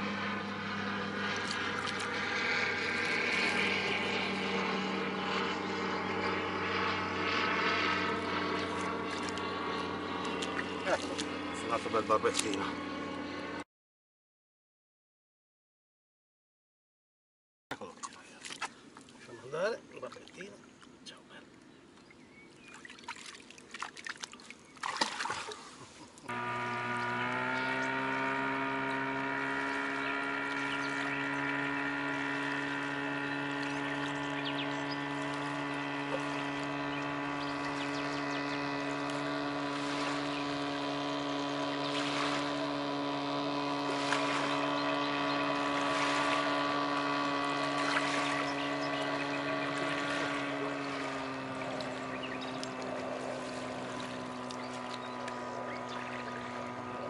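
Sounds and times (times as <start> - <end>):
water splashing: 0.0 - 5.7, 6.5 - 12.8, 17.7 - 21.6, 22.6 - 57.0
hum of sustained tones: 0.0 - 13.6, 26.3 - 57.0.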